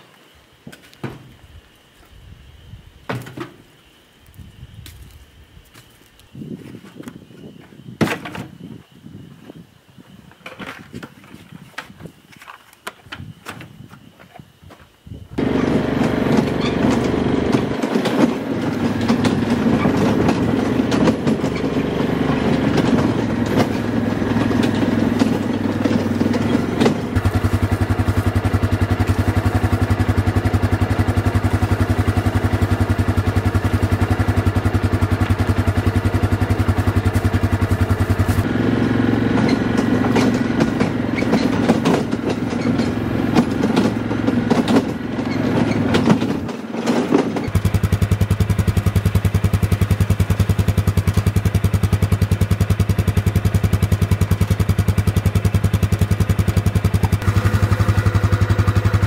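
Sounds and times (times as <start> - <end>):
atv engine running: 15.4 - 59.0.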